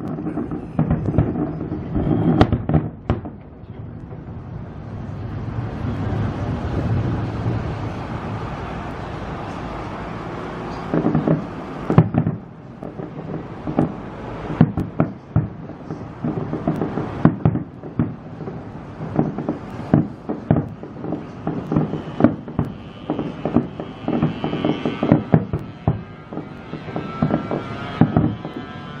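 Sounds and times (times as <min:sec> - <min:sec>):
fireworks bangs and crackles: 0:00.0 - 0:29.0.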